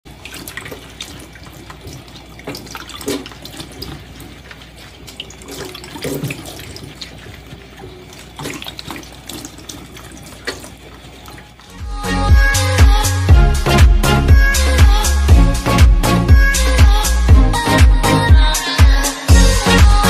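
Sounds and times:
water running and splashing: 0.0s - 11.8s.

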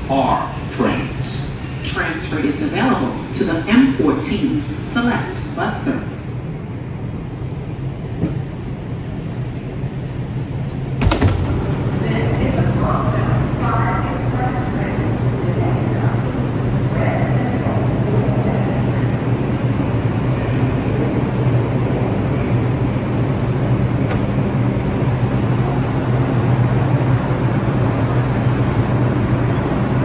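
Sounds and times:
constant rumble: 0.0s - 30.0s
subway train humming: 0.0s - 30.0s.

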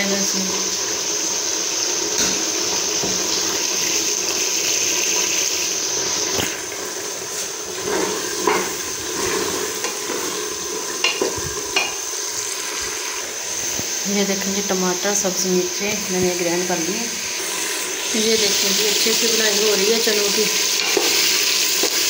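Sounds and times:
chickpeas sizzling in ghee: 0.0s - 22.0s
spoon stirring in a pot: 20.8s - 22.0s.

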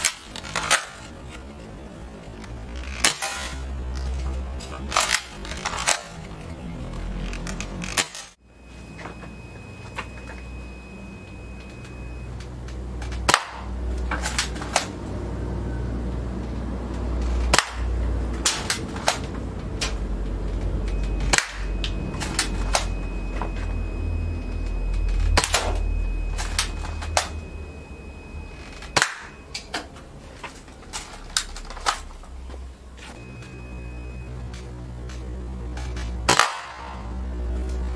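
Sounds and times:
airsoft rifle shots: 13.3s - 13.7s, 36.3s - 37.0s.

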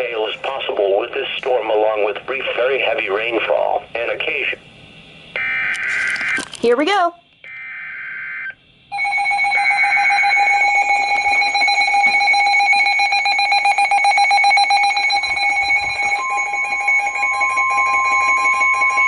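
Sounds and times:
shrill electronic alarm beeping: 5.3s - 6.5s, 7.4s - 19.0s.

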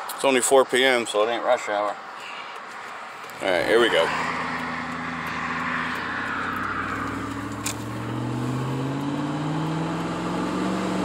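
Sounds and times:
truck engine accelerating: 3.3s - 11.0s.

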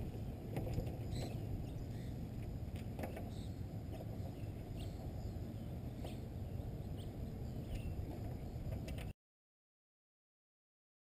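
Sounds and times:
faint bird chirps: 3.1s - 8.6s.

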